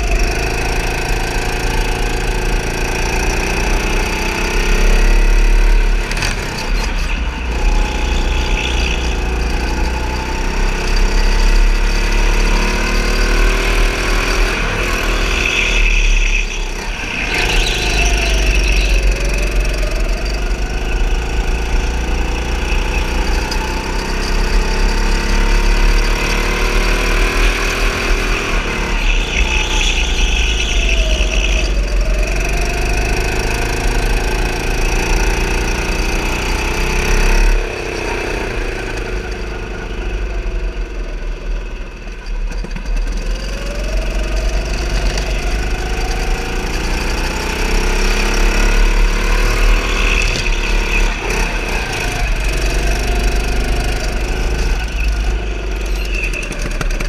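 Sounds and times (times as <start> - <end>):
go-kart engine running: 0.0 - 57.0
tyres squealing: 14.3 - 24.6, 26.8 - 33.8.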